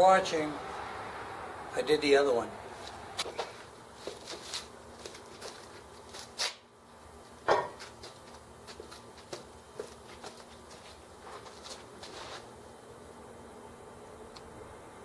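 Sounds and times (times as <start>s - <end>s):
chair knocking on concrete: 7.4s - 7.9s
chair scuffing: 9.8s - 12.5s.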